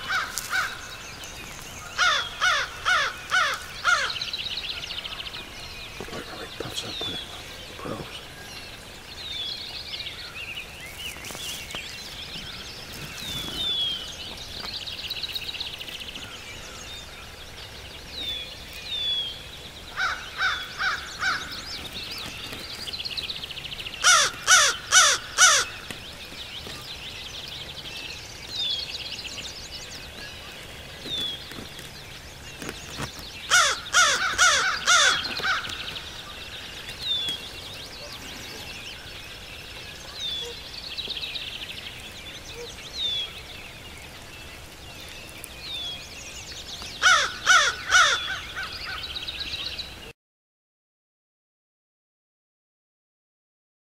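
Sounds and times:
crow cawing: 0.0s - 0.8s, 2.0s - 4.2s, 20.0s - 21.6s, 24.0s - 25.8s, 33.5s - 35.9s, 47.0s - 49.0s
small birds chirping: 0.0s - 50.1s.

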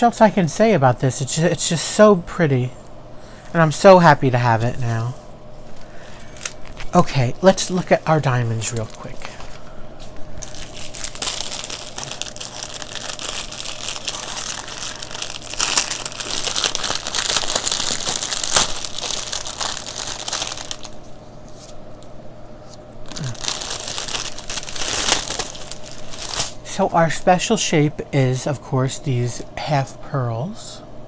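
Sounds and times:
plastic bag crinkling: 6.1s - 21.2s, 23.0s - 26.7s
small packets rustling: 7.7s - 21.2s, 23.0s - 26.6s.

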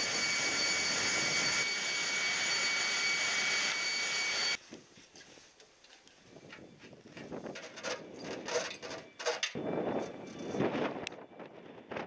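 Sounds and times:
jet engine roaring with whine: 0.0s - 4.6s.

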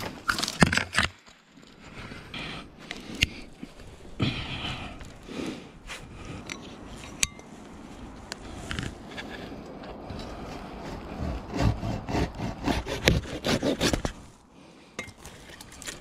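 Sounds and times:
branches snapping: 0.0s - 1.8s, 15.2s - 16.0s
clothing scraping on bark: 5.2s - 14.4s.

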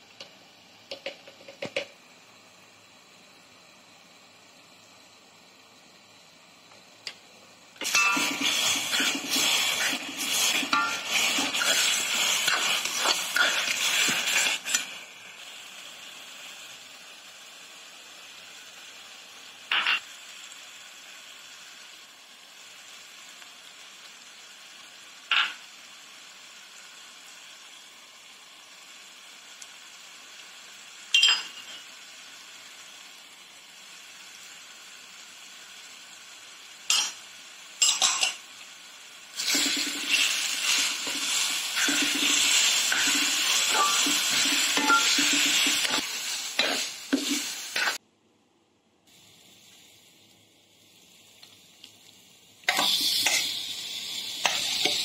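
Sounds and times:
sizzling in pan: 0.0s - 48.0s, 49.1s - 55.0s
metal spoon scraping pan: 7.8s - 14.9s
utensils clinking against pan: 7.8s - 14.9s, 31.1s - 31.9s, 36.9s - 37.2s, 37.8s - 38.4s, 39.4s - 48.0s.

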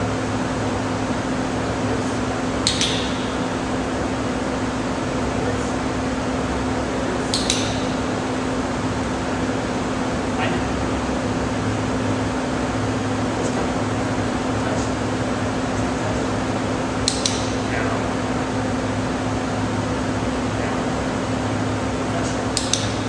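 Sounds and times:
fan hum: 0.0s - 23.0s
quick double click: 2.6s - 3.4s, 7.3s - 8.0s, 17.0s - 17.6s, 22.6s - 23.0s.

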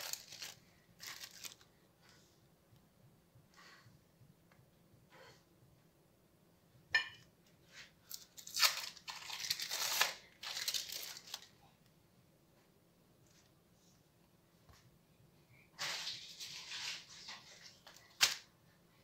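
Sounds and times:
crinkling rustling handling noise: 0.0s - 1.7s, 7.8s - 11.7s.

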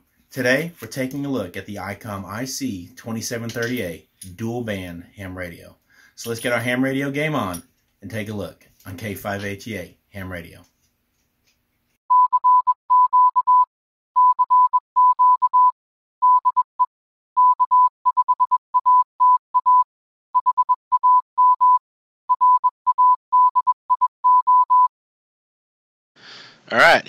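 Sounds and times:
morse code tone: 12.1s - 24.9s.

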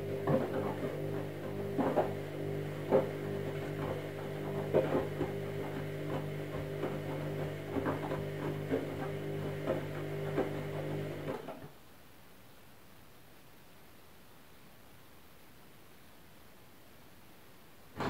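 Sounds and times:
washing machine motor hum: 0.0s - 11.7s.

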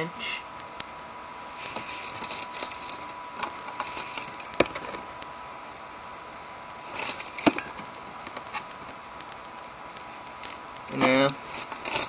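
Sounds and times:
faint steady whine: 0.0s - 12.0s
handling rustling: 1.6s - 5.0s, 6.8s - 9.0s, 10.4s - 12.0s.

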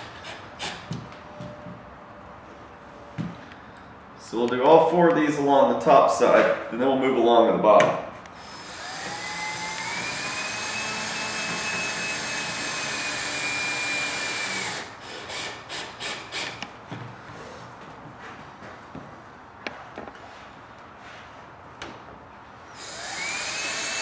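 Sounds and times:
cordless drill driving screw: 8.4s - 16.6s, 22.8s - 24.0s.

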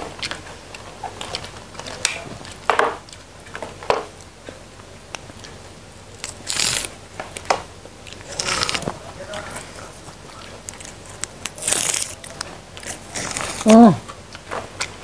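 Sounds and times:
pods snapping and crackling: 6.2s - 14.0s
crisp rasp of pod splitting: 10.7s - 14.0s.

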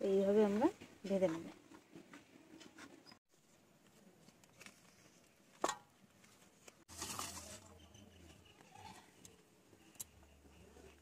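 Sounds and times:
leaves rustling: 6.9s - 7.7s.

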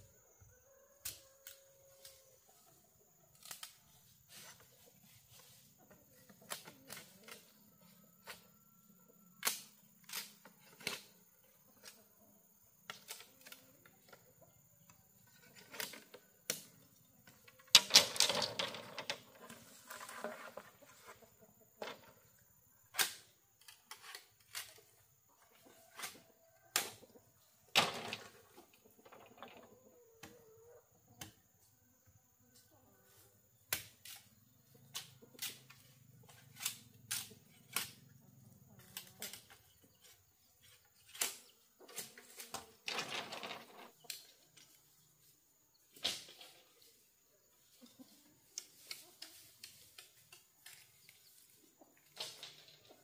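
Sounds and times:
knocks and clacks on bamboo: 17.4s - 20.7s.

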